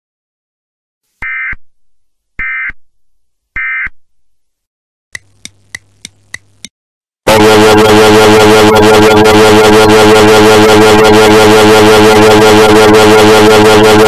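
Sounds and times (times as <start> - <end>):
clock ticking: 5.2 - 6.7.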